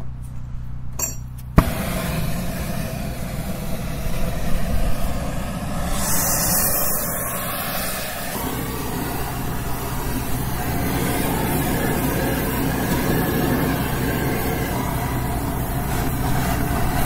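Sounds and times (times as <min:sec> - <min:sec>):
engine idling hum: 0:00.0 - 0:17.0
gas torch igniting pop: 0:01.6 - 0:02.8
gas torch flame hissing: 0:01.6 - 0:17.0.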